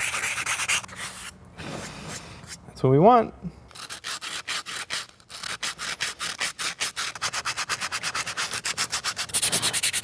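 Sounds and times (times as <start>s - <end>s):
sandpaper rasping on plastic: 0.0s - 1.3s, 3.7s - 10.0s.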